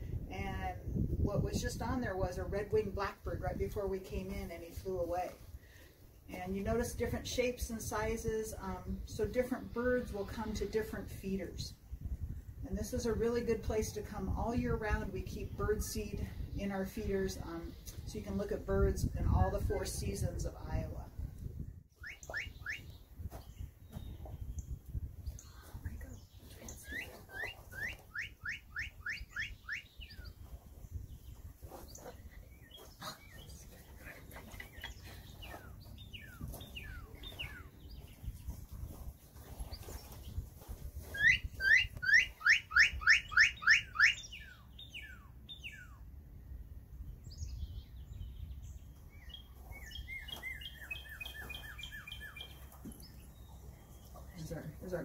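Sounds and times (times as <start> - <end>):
bird chirps and twittering: 21.6 - 46.1, 47.0 - 55.0.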